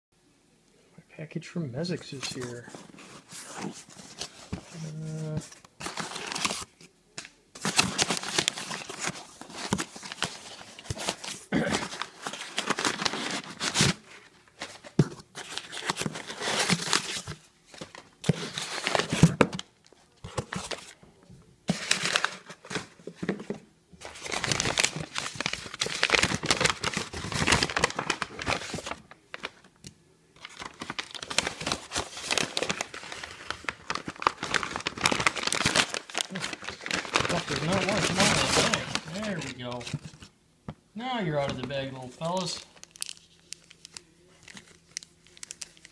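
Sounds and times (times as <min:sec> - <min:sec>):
paper rustling and crumpling: 0:02.1 - 0:21.0, 0:21.7 - 0:29.7, 0:30.4 - 0:40.3, 0:41.4 - 0:45.9.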